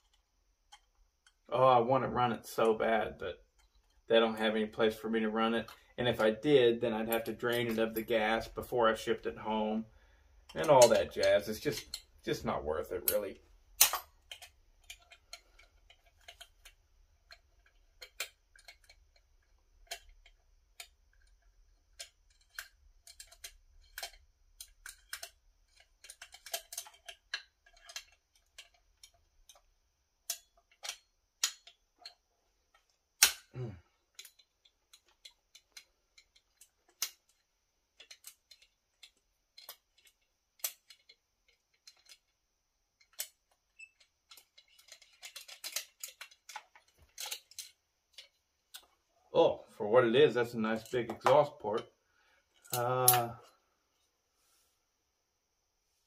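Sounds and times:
hand tools clicking and tapping: 10.5 - 12.2, 13.0 - 49.0.

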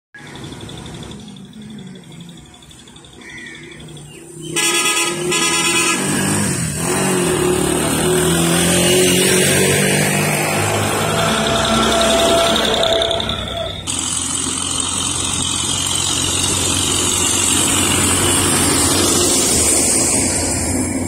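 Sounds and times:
road traffic: 0.1 - 21.0
tractor engine running: 0.2 - 21.0
vehicle horn: 4.4 - 6.6.

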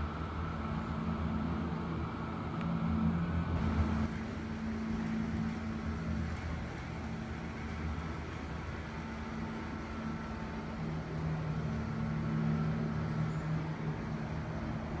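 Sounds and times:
model train wheels rumbling: 3.2 - 15.0.

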